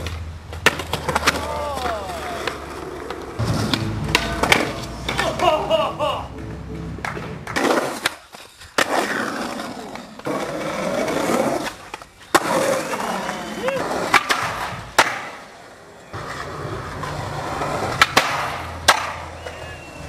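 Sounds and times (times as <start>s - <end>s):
skateboard clacks: 0.0s - 20.0s
skateboard wheels rolling on concrete: 0.0s - 20.0s.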